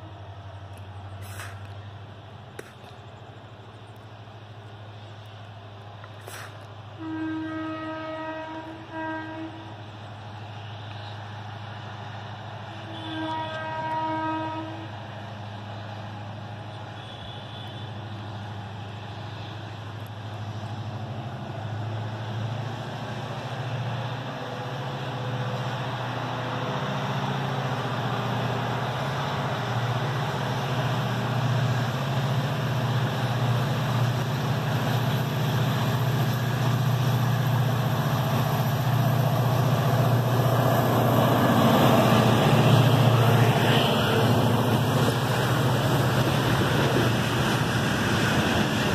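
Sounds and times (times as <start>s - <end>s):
diesel locomotive engine under load: 0.0s - 48.9s
train horn blast: 7.0s - 9.8s, 12.7s - 15.0s, 16.9s - 18.0s.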